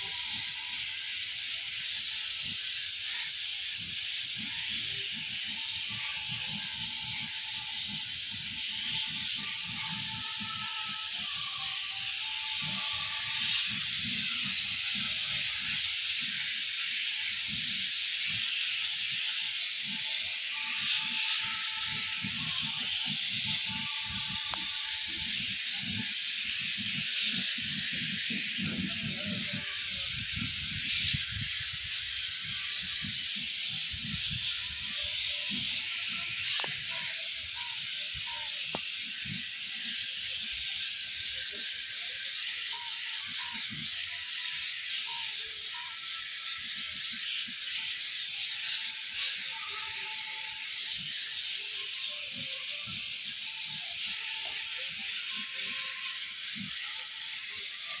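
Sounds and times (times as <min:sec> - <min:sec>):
spray gun hissing: 0:00.0 - 0:58.0.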